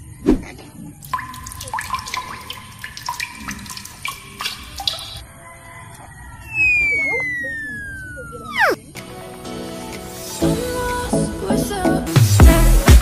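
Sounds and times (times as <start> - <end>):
drips and bubbling: 0.9 - 5.5, 6.5 - 8.8
liquid splashing and trickling: 0.9 - 5.5.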